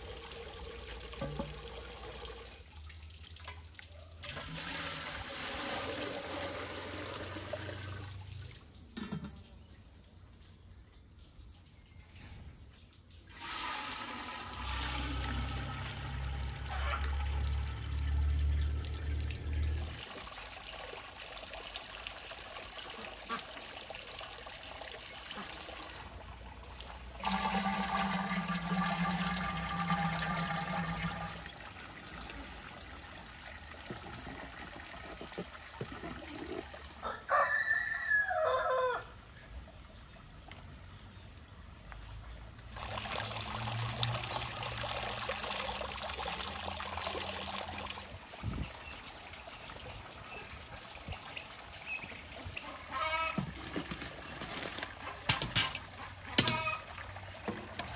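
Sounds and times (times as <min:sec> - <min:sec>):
water pouring through colander: 0:00.0 - 0:09.5, 0:13.1 - 0:37.0, 0:42.7 - 0:51.8, 0:52.4 - 0:57.9
rooster crowing: 0:37.0 - 0:39.2.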